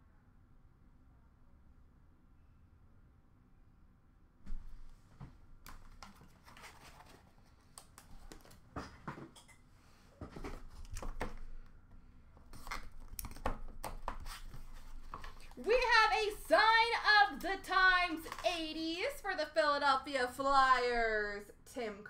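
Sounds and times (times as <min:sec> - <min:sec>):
cardboard and plastic rustling: 0:04.5 - 0:09.4, 0:10.2 - 0:11.7, 0:12.4 - 0:18.7.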